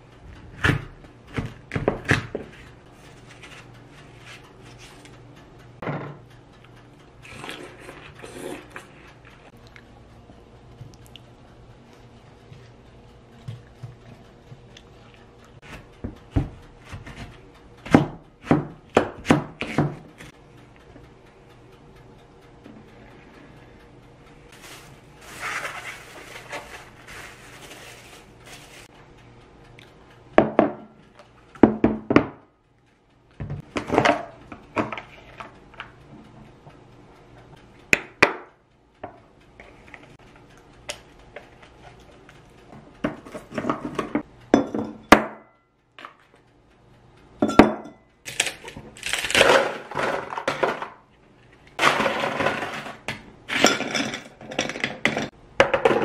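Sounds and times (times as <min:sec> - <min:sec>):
plastic wrap crinkling: 0:24.5 - 0:28.9.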